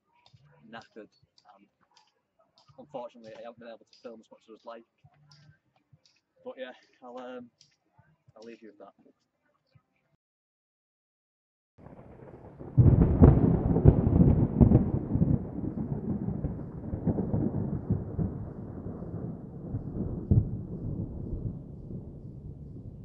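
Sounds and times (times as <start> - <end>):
thunder: 11.8 - 23.0.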